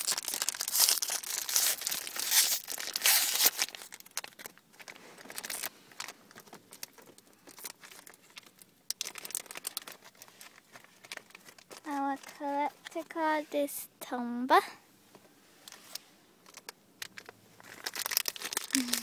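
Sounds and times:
foil packet tearing and crinkling: 0.0s - 13.0s, 15.7s - 19.0s.

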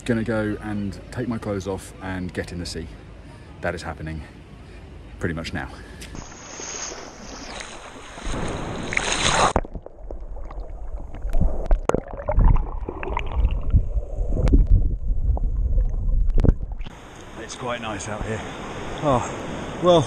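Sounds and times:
surf rushing: 6.2s - 9.6s, 16.8s - 20.0s
sea water sloshing and splashing: 6.2s - 17.3s
low rumbles: 8.1s - 17.5s.

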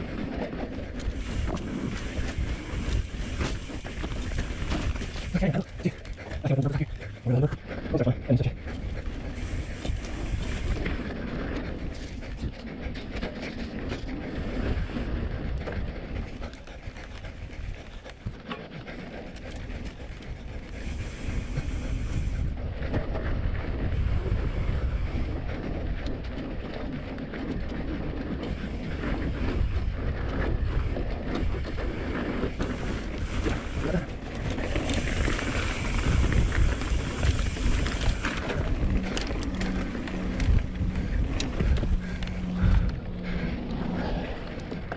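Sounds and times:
bike rattling over rough ground: 0.0s - 44.9s
wind buffeting microphone: 0.0s - 44.9s
tyres rumbling on dirt: 20.4s - 44.9s.

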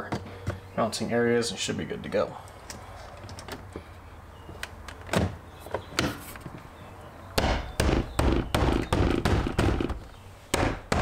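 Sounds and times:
fist knocking door trim: 7.4s - 10.0s.

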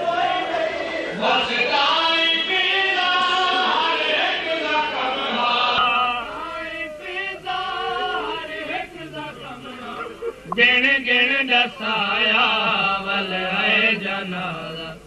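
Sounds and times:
voices chanting a lament: 0.0s - 15.0s.

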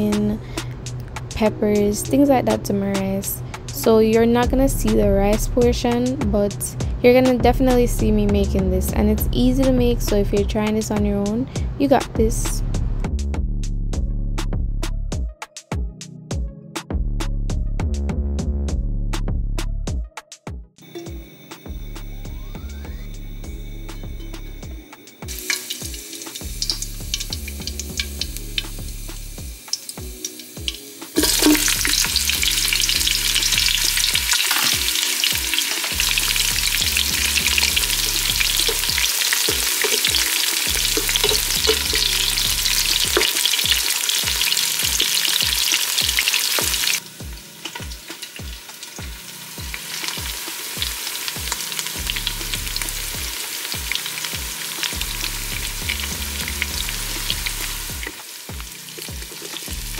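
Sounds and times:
food sizzling in hot oil: 23.1s - 59.9s.

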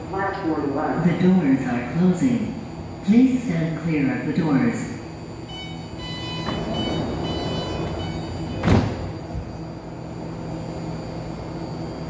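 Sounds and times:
train hum: 0.0s - 12.0s
train door warning tones: 5.4s - 11.0s
sliding doors thudding shut: 6.3s - 9.4s.

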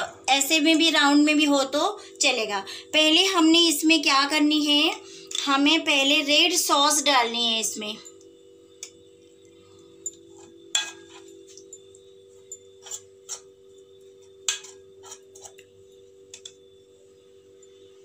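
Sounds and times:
faint steady hum: 0.0s - 18.0s
metal spoon scraping cake tin: 12.8s - 13.5s, 14.5s - 15.6s.

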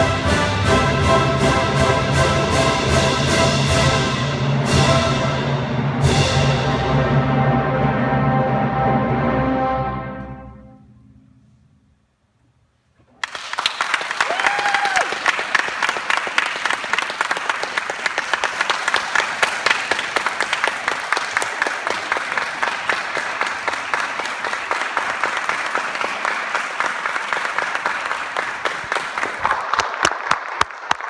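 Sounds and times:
audience applauding: 13.1s - 31.0s.

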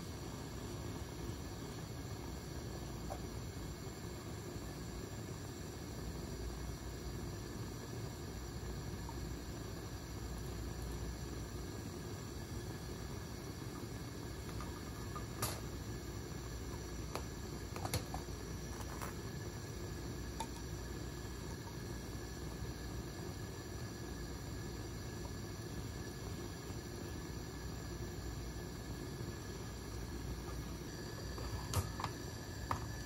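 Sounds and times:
low ventilation hum: 0.0s - 33.0s.

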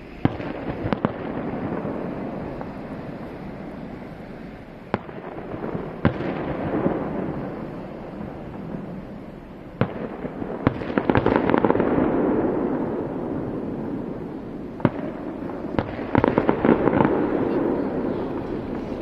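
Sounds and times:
fireworks bangs: 0.0s - 19.0s
fireworks crackling: 0.0s - 19.0s
low din of bursts: 0.0s - 19.0s.

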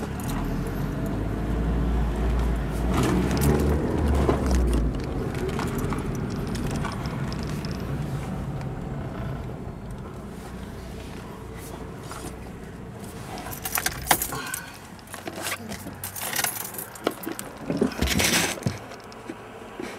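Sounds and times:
car engine and road noise: 0.0s - 19.9s
sharp clicks and rattles: 3.0s - 10.2s, 13.4s - 19.4s.

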